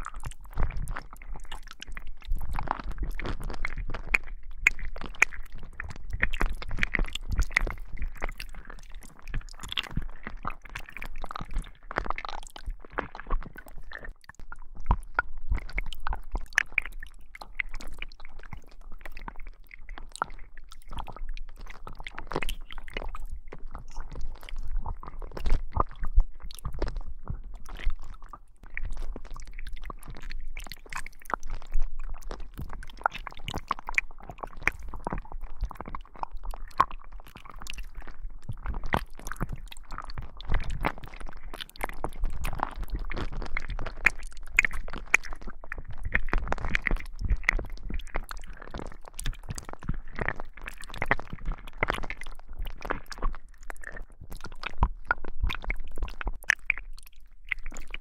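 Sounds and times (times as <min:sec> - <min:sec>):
slime squelching: 0:00.0 - 0:58.0.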